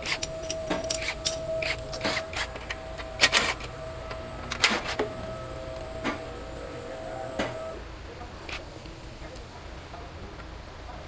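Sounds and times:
hand tools clicking and clanking: 0.0 - 5.1
faint steady whine: 0.0 - 11.0.

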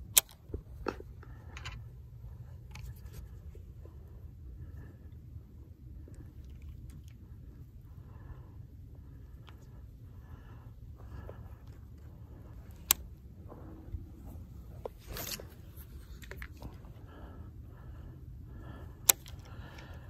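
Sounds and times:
low rumble: 0.5 - 20.0
reel clicks: 19.0 - 20.0.

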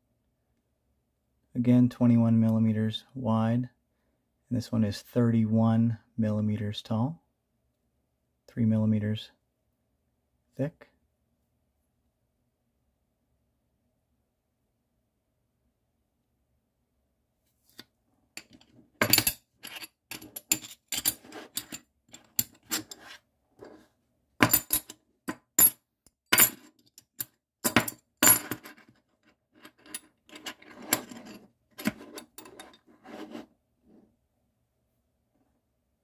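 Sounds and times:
metal chips clinking together: 18.4 - 23.1.

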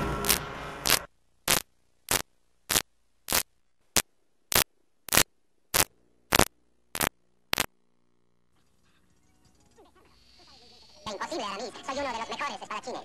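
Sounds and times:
loud noisy passage: 0.0 - 1.1
electronic static bursts: 0.0 - 8.5.

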